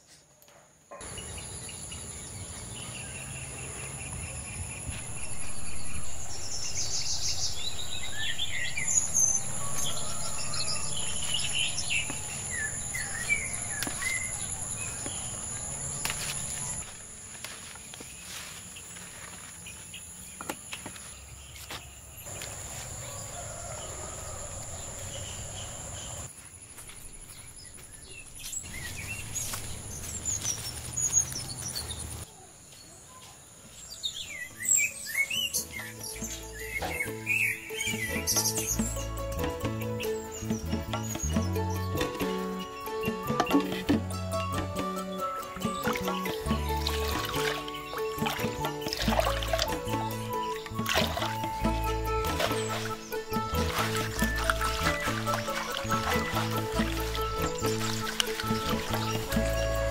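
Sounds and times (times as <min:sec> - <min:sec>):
birds chirping: 0:00.9 - 0:59.9
insects droning: 0:01.0 - 0:32.5
leaves rustling: 0:03.7 - 0:32.2, 0:45.4 - 0:59.9.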